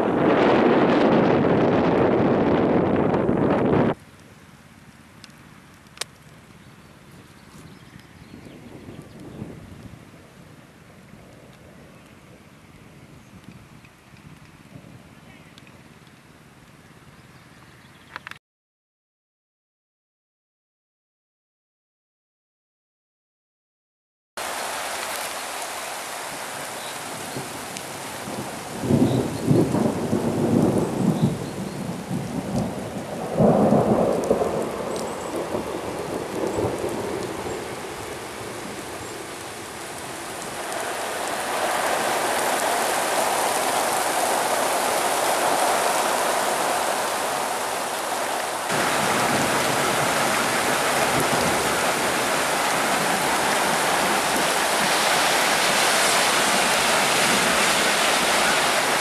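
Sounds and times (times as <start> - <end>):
thunder rumbling: 0.0 - 4.0, 28.2 - 59.0
steady rain downpour: 0.0 - 17.6, 24.4 - 59.0.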